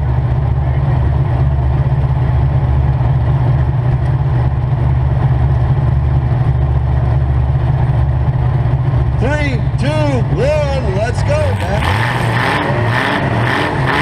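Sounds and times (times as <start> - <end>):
car engine idling loudly: 0.0 - 14.0.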